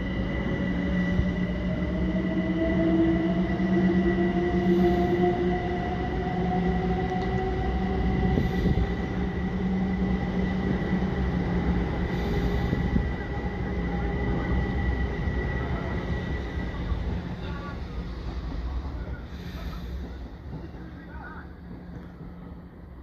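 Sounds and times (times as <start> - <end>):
train wheels rumbling on rail: 0.0 - 23.0
train whining tones: 0.0 - 23.0.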